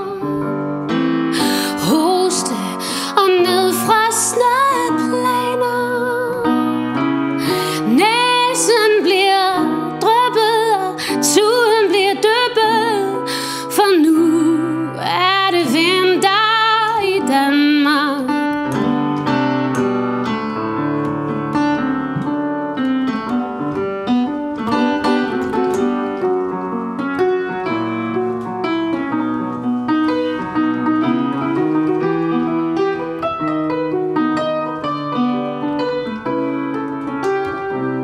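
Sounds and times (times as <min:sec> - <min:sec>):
solo piano playing chords: 0:00.0 - 0:38.0.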